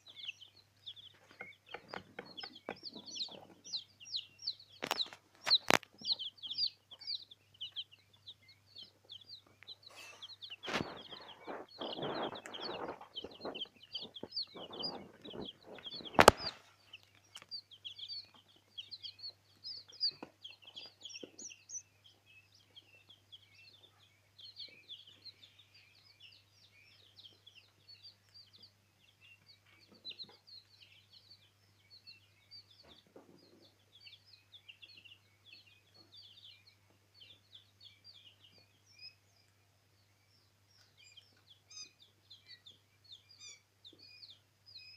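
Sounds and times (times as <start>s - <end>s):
chicks peeping: 0.0s - 44.9s
rustling: 9.5s - 17.5s.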